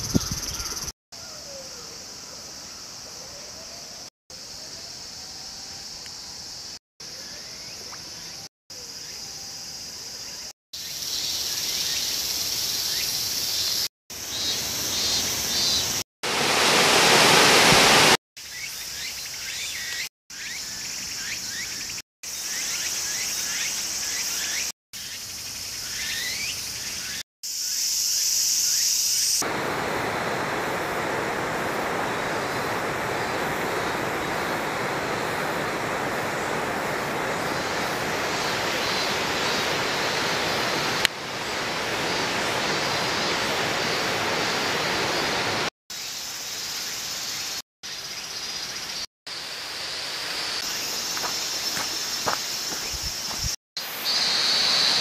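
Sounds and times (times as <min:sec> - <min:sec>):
bird chirps: 0:00.0 - 0:01.6
high drone of insects: 0:00.0 - 0:55.0
flowing water: 0:14.2 - 0:18.2, 0:29.4 - 0:45.7
rush of noise: 0:16.2 - 0:18.2.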